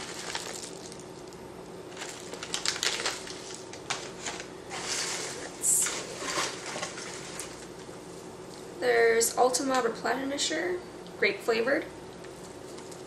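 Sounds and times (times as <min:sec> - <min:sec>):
packaging rustling and crinkling: 0:00.0 - 0:07.9.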